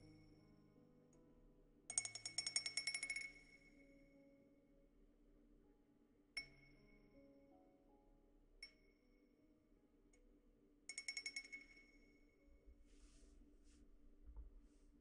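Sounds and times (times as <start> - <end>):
wind-chime cup ringing when struck: 1.9 - 3.8, 10.9 - 12.2.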